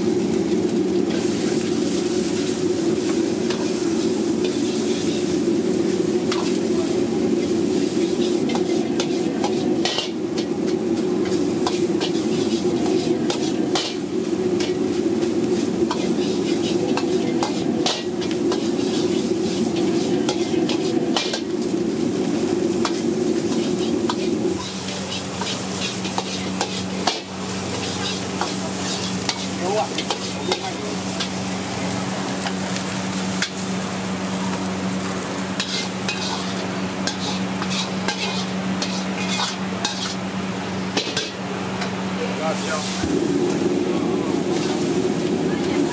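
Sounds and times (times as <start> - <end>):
rice sizzling in a wok: 0.0 - 45.9
ladle scraping against wok: 1.1 - 31.4, 35.6 - 40.3, 40.9 - 42.0.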